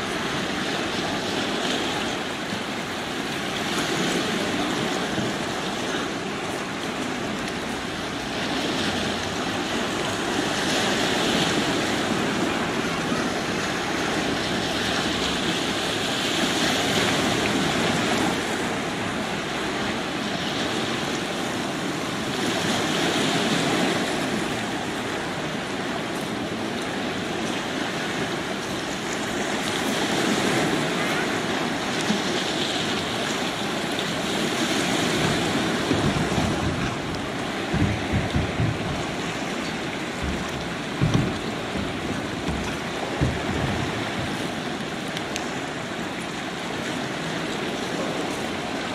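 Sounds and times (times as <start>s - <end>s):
small waves washing over stones: 0.0s - 48.9s.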